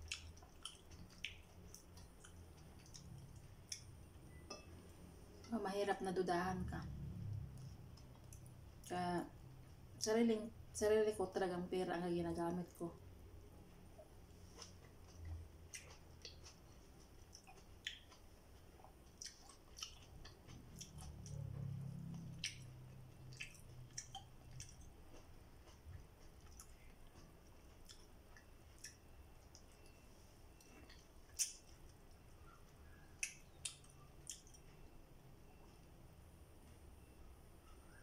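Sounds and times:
chewing and lip smacks: 0.0 - 4.7, 7.2 - 8.9, 14.0 - 35.7.

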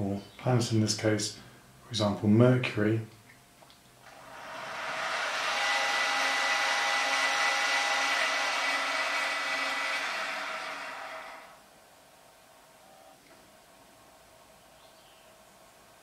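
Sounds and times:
electric motor whirring: 4.1 - 11.6.

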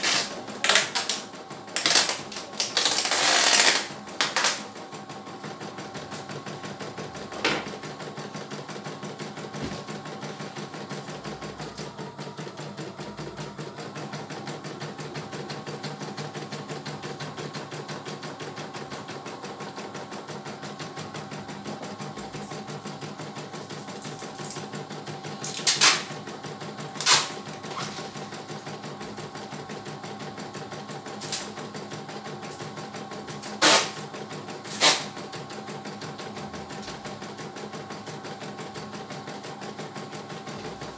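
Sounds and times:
embroidery machine stitching: 0.0 - 40.9.

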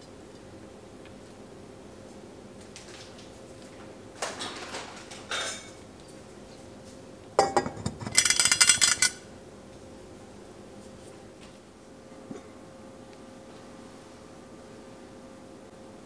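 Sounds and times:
pot lid clanking and rattling: 7.4 - 9.2.

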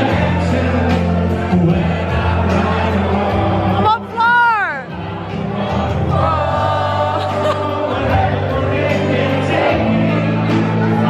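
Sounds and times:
backing music with bass notes: 0.0 - 11.0.

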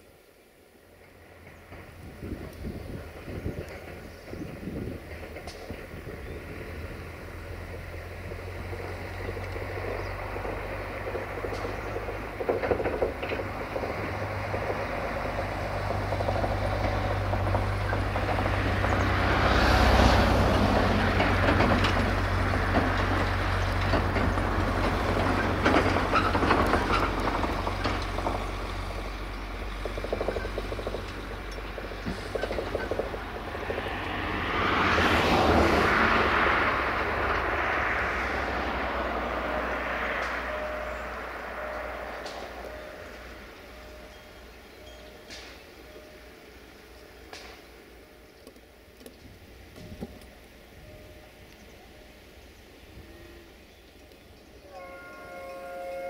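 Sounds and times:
truck diesel engine hum: 0.0 - 56.0
tyre noise on dirt road: 1.2 - 56.0.

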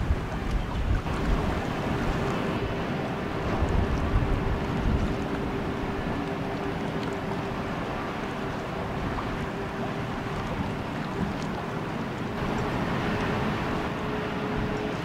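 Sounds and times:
wind noise on microphone: 0.0 - 11.5
low ship engine drone: 0.0 - 15.0.

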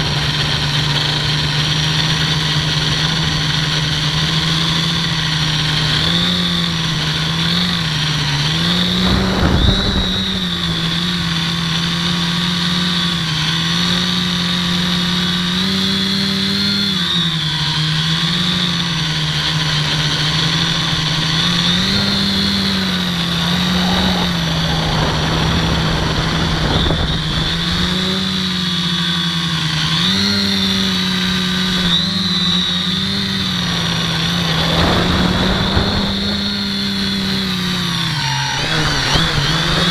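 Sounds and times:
quadcopter motors and propellers: 0.0 - 39.9
rushing noise bursts: 19.8 - 28.1, 33.4 - 39.9.

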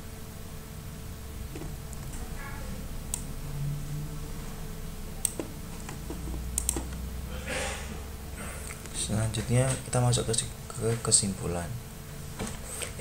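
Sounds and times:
steady low hum: 0.0 - 13.0
computer mouse clicks: 5.2 - 7.0.

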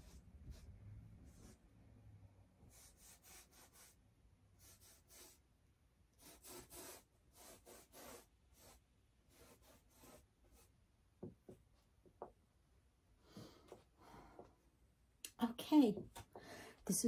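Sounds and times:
paintbrush scrubbing on canvas: 4.6 - 5.4, 6.2 - 10.7
soft small knocks: 11.2 - 12.4.

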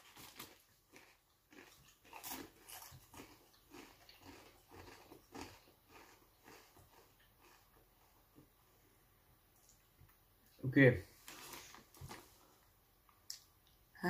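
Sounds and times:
crunching and chewing chips: 0.0 - 8.3, 11.3 - 12.3.

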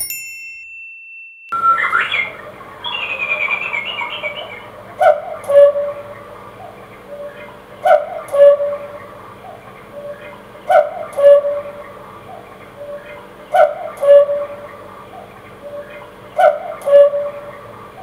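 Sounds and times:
electronic cuckoo call: 1.5 - 6.1, 7.1 - 9.0, 10.0 - 11.8, 13.6 - 14.6, 15.7 - 17.5.

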